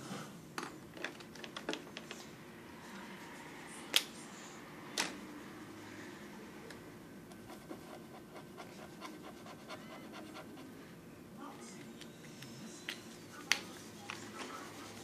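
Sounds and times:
pencil scratching on paper: 7.4 - 10.8.

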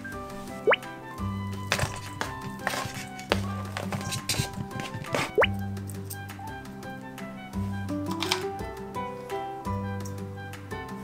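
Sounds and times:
light background music with bass: 0.0 - 11.0
quick rising bloop: 0.6 - 0.9.

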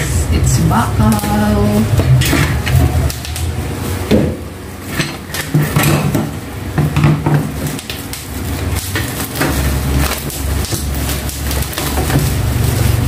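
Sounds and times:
dish rack metal parts clattering: 4.1 - 13.0.

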